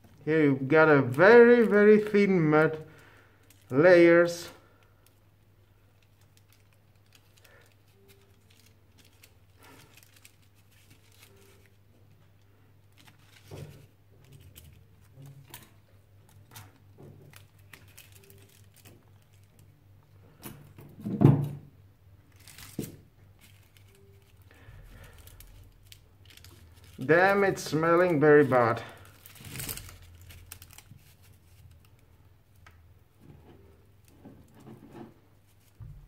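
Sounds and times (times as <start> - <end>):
film crinkling and tearing: 0.0 - 20.4, 22.2 - 35.9.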